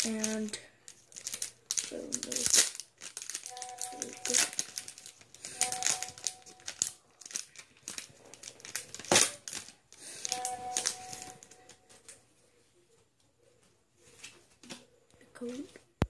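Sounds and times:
foil wrapper crinkling and tearing: 0:00.0 - 0:11.8.

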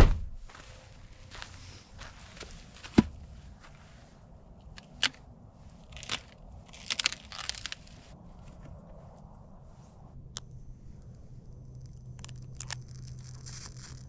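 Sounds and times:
wrapping crinkling and rustling: 0:05.9 - 0:08.1, 0:12.0 - 0:14.0.

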